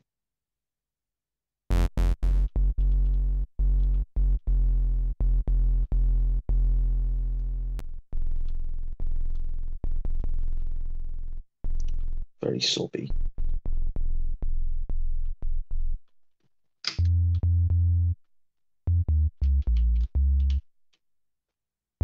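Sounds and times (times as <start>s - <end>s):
synthesizer sub bass notes: 1.7s - 12.3s, 13.1s - 16.0s, 17.0s - 18.2s, 18.9s - 20.6s.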